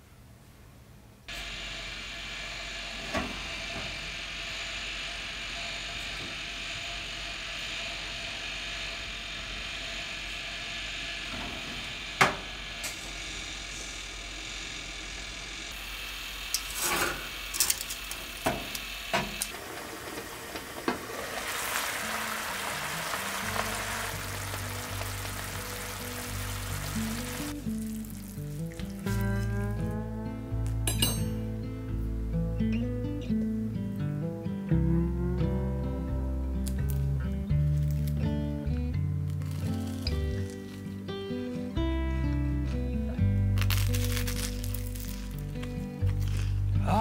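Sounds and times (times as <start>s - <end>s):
steady background hum: 0.0s - 47.0s
food sizzling in a frying pan: 15.7s - 29.5s.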